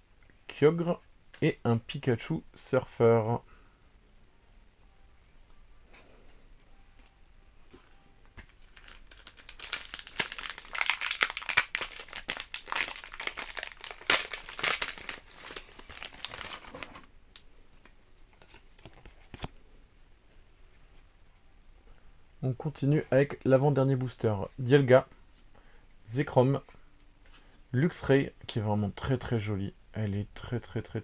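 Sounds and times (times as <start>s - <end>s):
foil wrapper tearing and crinkling: 8.5s - 17.1s.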